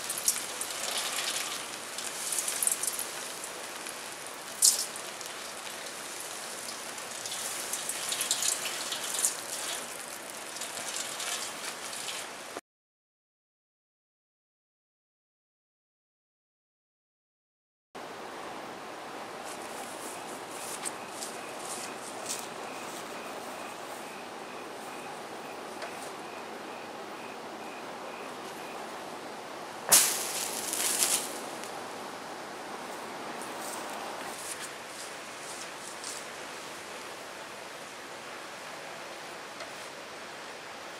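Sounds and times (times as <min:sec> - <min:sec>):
burning metal crackling and popping: 0:00.0 - 0:12.3, 0:29.9 - 0:31.8
hose water spray and steam hiss: 0:00.0 - 0:12.6, 0:29.9 - 0:31.7.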